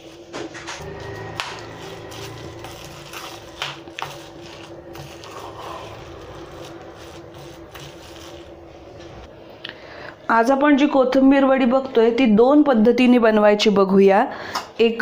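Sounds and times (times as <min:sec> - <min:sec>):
spoon scraping steel bowl: 0:00.8 - 0:09.3.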